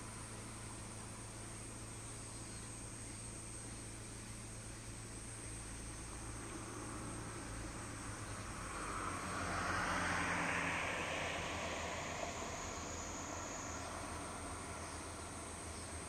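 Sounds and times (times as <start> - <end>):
outdoor background hiss: 0.0 - 16.0
distant engine: 6.2 - 16.0.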